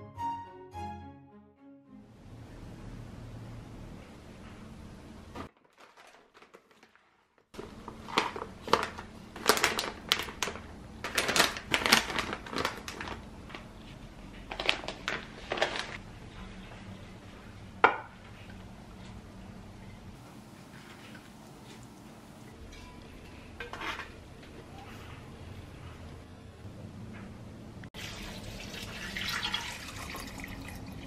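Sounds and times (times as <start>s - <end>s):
plastic bags crinkling: 5.5s - 16.0s.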